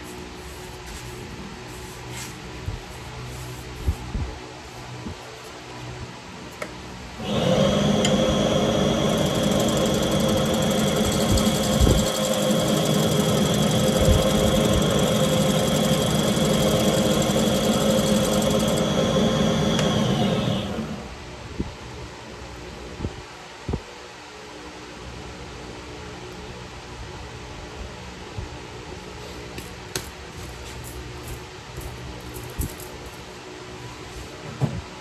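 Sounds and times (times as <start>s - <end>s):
gouge cutting spinning wood: 7.2s - 21.0s
wood lathe motor whine: 7.2s - 21.1s.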